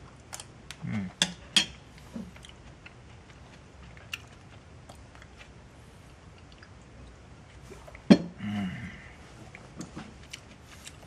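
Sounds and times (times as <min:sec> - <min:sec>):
low voice hum: 0:00.7 - 0:01.2, 0:08.2 - 0:09.4.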